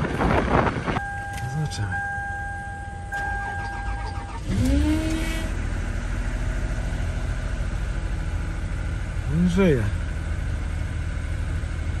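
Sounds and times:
car engine starting and idling: 0:00.0 - 0:12.0
steady high tone: 0:01.0 - 0:04.6
starter motor cranking: 0:03.1 - 0:05.5.

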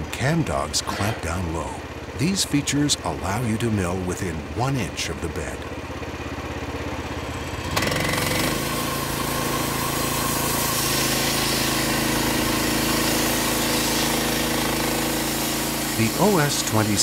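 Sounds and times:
small engine revving: 0:07.4 - 0:17.0
bandsaw cutting log: 0:07.5 - 0:17.0.

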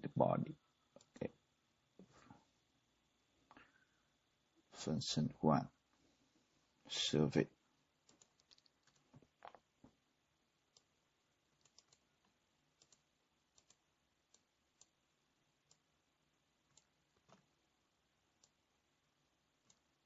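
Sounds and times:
keyboard and mouse clicks: 0:08.1 - 0:09.6, 0:11.6 - 0:14.9, 0:16.7 - 0:17.5.

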